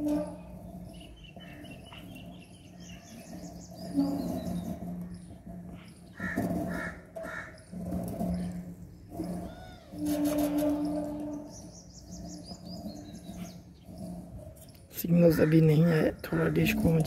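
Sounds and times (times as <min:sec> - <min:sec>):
crow cawing: 0:06.2 - 0:07.6.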